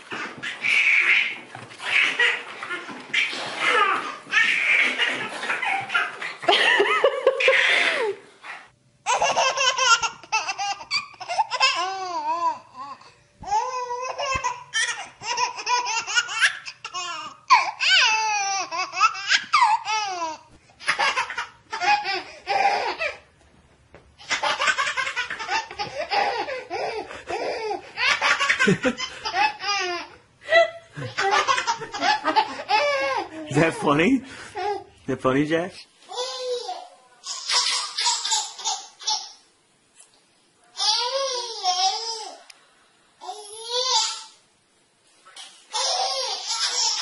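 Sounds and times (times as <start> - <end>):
babies laughing: 0.0 - 8.2, 9.1 - 12.8, 13.5 - 23.3, 24.2 - 33.8, 36.1 - 39.4, 45.7 - 47.0.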